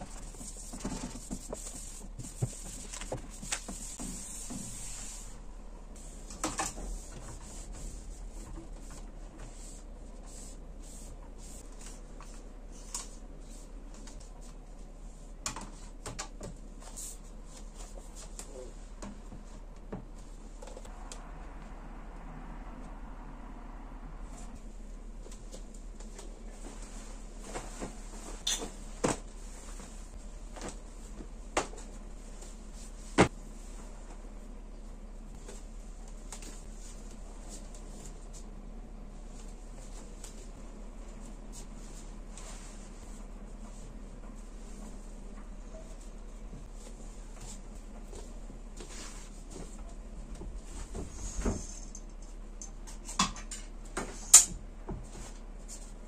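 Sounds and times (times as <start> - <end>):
rubbing and rustling: 0.0 - 15.2
steady low hum: 0.0 - 56.0.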